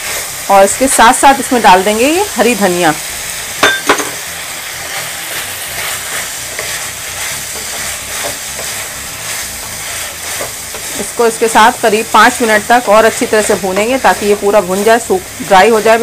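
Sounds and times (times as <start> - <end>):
meat sizzling in a pan: 0.0 - 16.0
wooden spatula scraping: 4.7 - 16.0.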